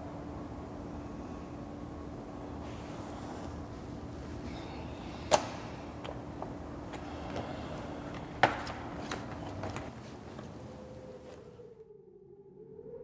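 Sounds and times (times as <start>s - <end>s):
faint steady hum: 0.0s - 13.0s
papers being leafed through: 5.3s - 11.5s.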